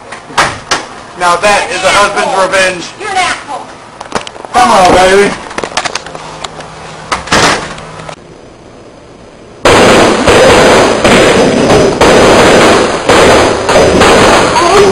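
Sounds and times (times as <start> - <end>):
firecrackers banging rapidly: 9.6 - 14.9.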